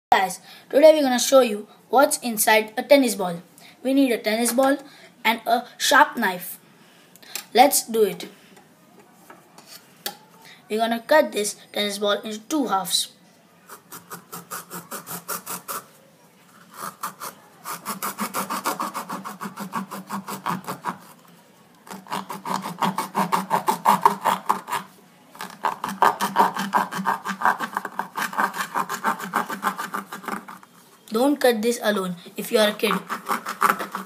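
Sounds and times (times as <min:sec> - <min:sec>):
knife sawing through tennis ball: 0:13.7 - 0:15.9, 0:16.6 - 0:21.2, 0:21.9 - 0:30.6, 0:32.6 - 0:34.0.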